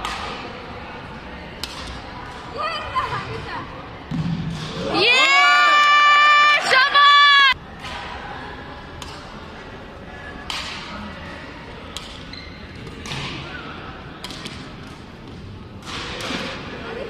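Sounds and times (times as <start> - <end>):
racket hitting shuttlecock: 1.6 - 2.0.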